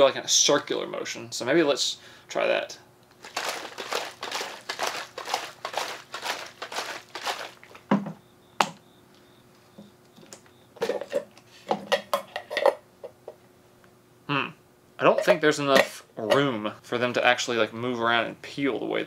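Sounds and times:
eggs rattling in plastic container: 3.1s - 8.0s
plastic clatter: 3.1s - 8.2s.

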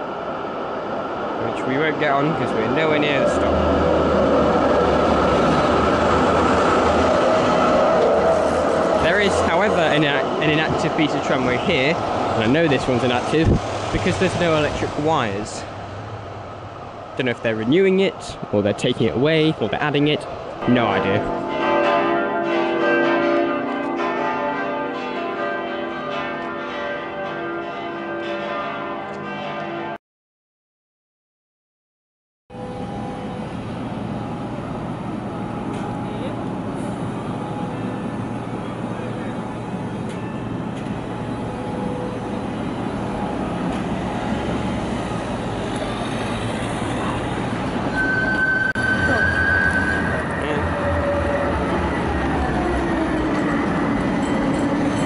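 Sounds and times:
street traffic noise: 0.0s - 24.8s, 32.5s - 55.0s
tram wheels rumbling: 0.0s - 26.2s, 32.6s - 55.0s
church bells ringing: 20.6s - 30.0s.

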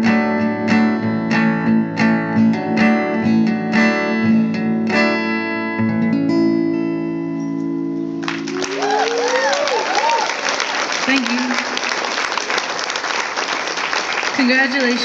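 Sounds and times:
acoustic guitar picked: 0.0s - 9.0s.

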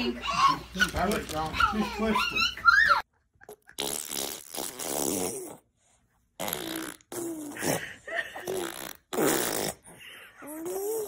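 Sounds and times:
baby blowing raspberries: 3.8s - 5.8s, 6.4s - 11.0s.

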